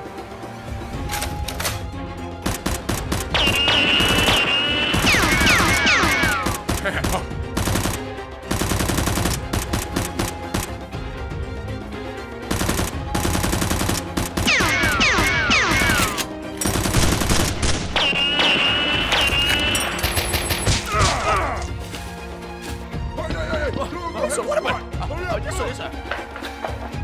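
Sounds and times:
background music: 0.0 - 27.0
machine-gun fire bursts: 2.4 - 10.7, 12.5 - 19.2
falling whistles: 18.0 - 19.8.

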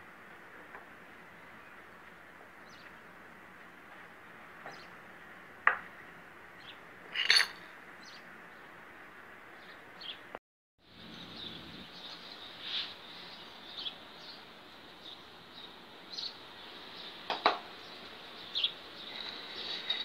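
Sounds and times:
metal parts clinking on tile: 7.1 - 7.6
steady hiss: 12.1 - 20.0.

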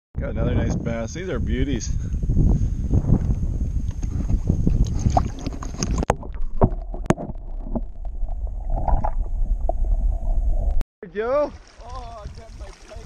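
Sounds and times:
wind: 0.2 - 13.0
faint underwater clicks and knocks: 3.2 - 10.0
water lapping: 4.8 - 7.8, 11.2 - 13.0
underwater gurgling: 4.8 - 10.8.

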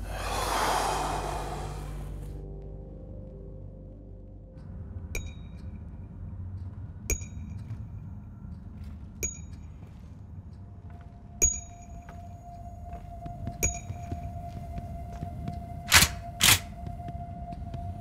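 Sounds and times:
low rumble: 0.0 - 3.5.

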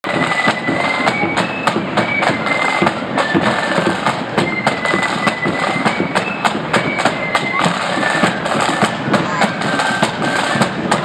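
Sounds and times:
bass drum beating march: 0.0 - 11.0
flutes playing melody: 0.0 - 11.0
snare drums: 0.0 - 11.0.

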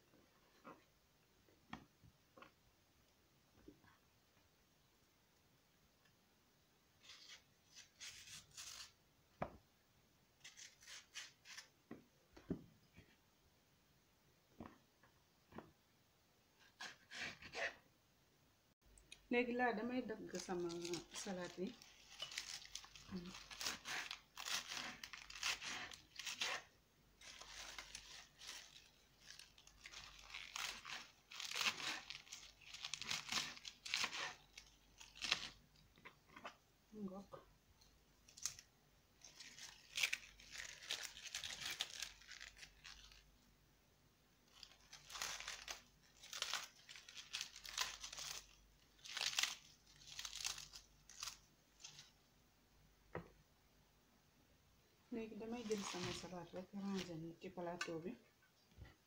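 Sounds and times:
lettuce tearing and crunching: 20.4 - 35.6, 38.3 - 43.3, 44.5 - 52.1.

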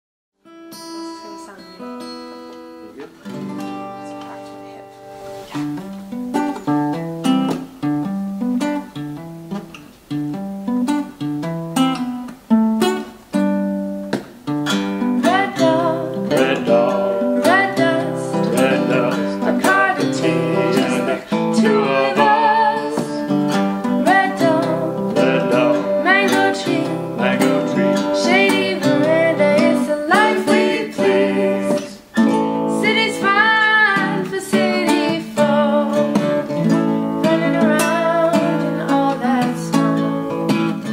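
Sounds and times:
acoustic guitar strumming: 0.4 - 40.9
ukulele playing: 0.5 - 40.9
woman singing: 15.2 - 40.9.

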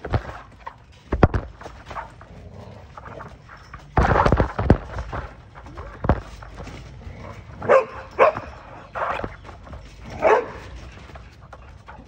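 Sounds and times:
dog barking: 7.6 - 9.2, 10.2 - 10.7.

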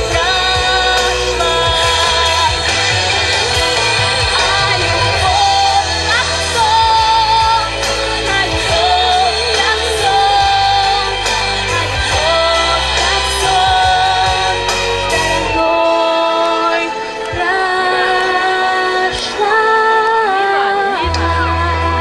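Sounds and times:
backing music with bass: 0.0 - 22.0
woman singing into microphone: 0.0 - 22.0.

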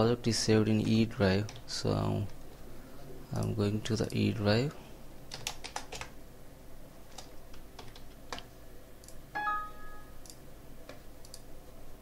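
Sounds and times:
keyboard and mouse clicks: 5.3 - 6.2, 7.1 - 9.2, 10.2 - 11.5
computer system chime: 9.4 - 10.2.

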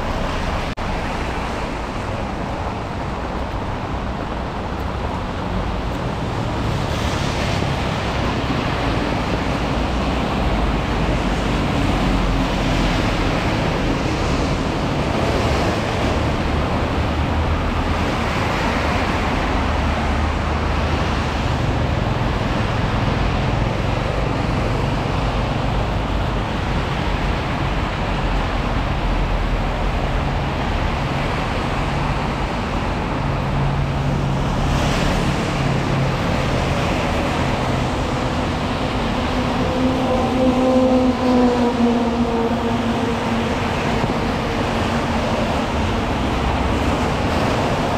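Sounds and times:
passing vehicle engines: 0.0 - 47.9
tyres on wet road: 0.0 - 47.9.

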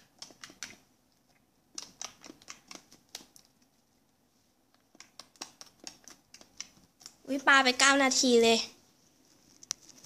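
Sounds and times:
slime popping and crackling: 0.0 - 0.8, 1.6 - 3.7, 4.8 - 7.8.

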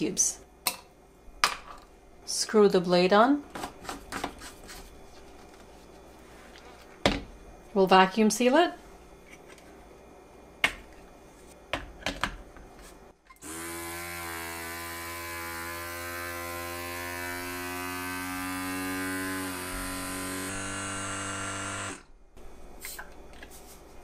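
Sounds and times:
small vacuum pump motor running: 13.4 - 22.1.

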